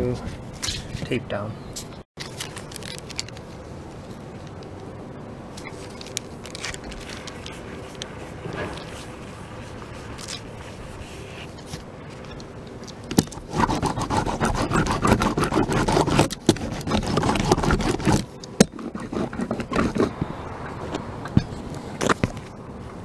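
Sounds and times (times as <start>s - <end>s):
seam roller on roof tape: 13.4s - 20.2s.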